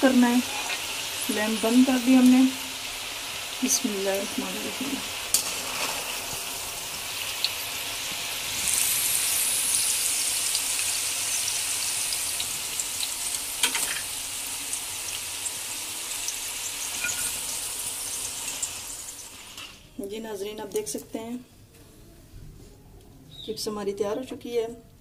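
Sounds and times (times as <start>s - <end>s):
fries sizzling in oil: 0.0s - 20.0s.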